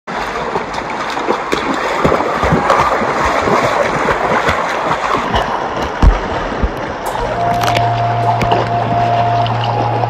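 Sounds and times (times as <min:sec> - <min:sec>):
footsteps splashing in water: 0:00.1 - 0:10.0
rushing river water: 0:00.1 - 0:10.0.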